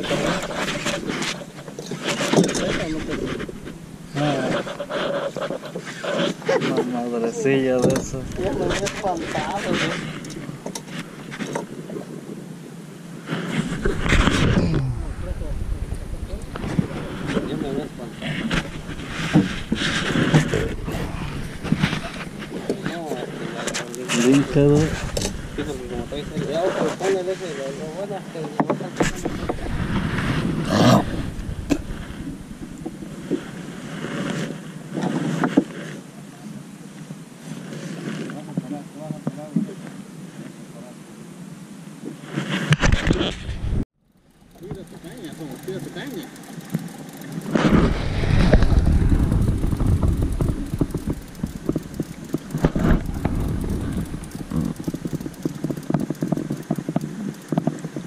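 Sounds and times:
wind rushing over microphone: 0.0 - 5.4, 7.8 - 11.8, 13.4 - 23.6, 24.2 - 27.1, 29.0 - 34.4, 42.6 - 43.8, 47.1 - 58.0
low handling rumble: 13.8 - 23.4, 24.4 - 26.6, 29.3 - 33.3, 44.1 - 58.0.

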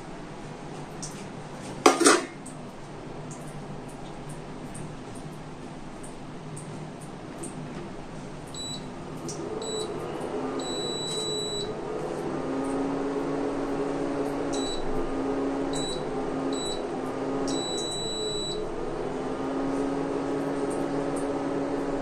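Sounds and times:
cooktop fan humming: 0.0 - 22.0
high-pitched control panel beeps: 8.6 - 8.8, 9.6 - 10.0, 10.6 - 11.7, 14.5 - 14.8, 15.7 - 16.0, 16.6 - 16.8, 17.5 - 18.6.

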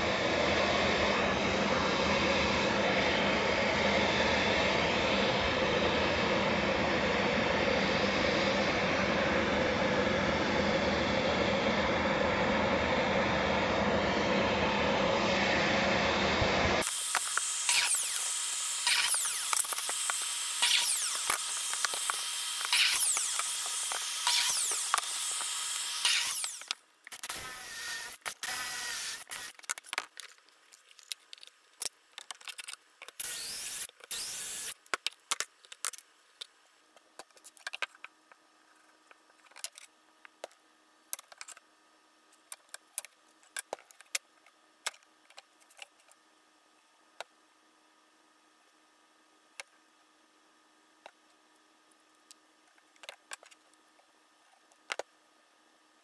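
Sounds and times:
vacuum dust extraction: 0.0 - 29.6.

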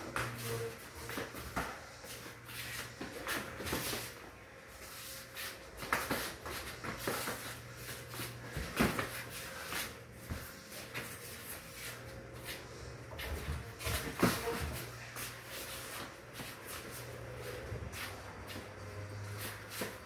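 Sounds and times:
feet shuffling on concrete: 4.8 - 20.0.

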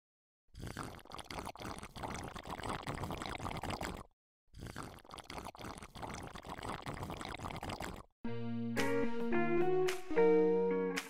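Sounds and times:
aquarium water bubbling: 0.6 - 8.1.

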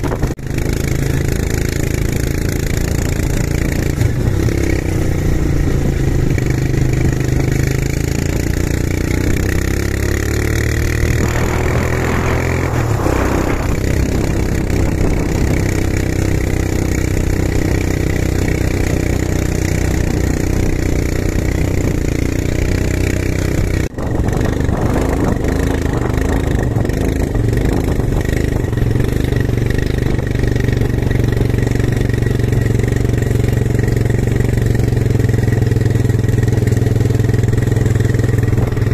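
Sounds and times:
quad bike engines running: 0.0 - 38.9.

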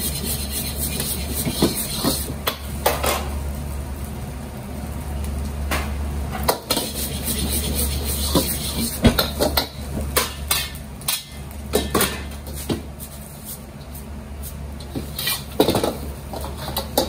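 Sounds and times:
ladle scraping and clanking wok: 0.0 - 2.4, 6.4 - 13.4, 14.8 - 17.0
steady low hum: 0.0 - 17.0.

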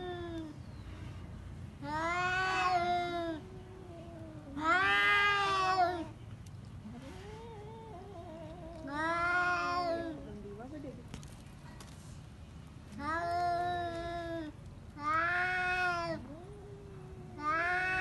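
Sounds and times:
cats yowling: 1.8 - 6.1, 7.1 - 10.2, 15.0 - 18.0
low wavering cat moan: 6.8 - 10.4.

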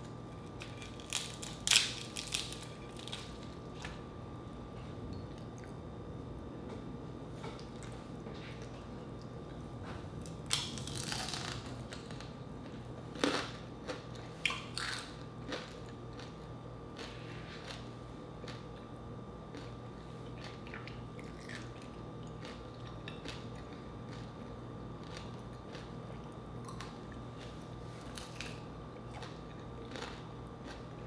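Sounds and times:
crispy fried meat crunching: 0.0 - 3.8, 10.2 - 12.4, 13.1 - 18.7, 19.5 - 31.0.

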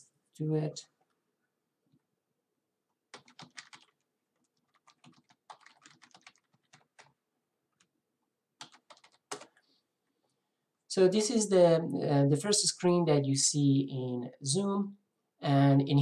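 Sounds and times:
typing on computer keyboard: 3.1 - 7.2, 8.6 - 9.6.

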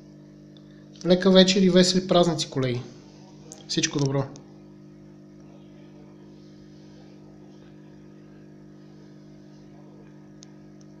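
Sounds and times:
steady low hum: 0.0 - 11.0
faint click: 10.4 - 11.0.

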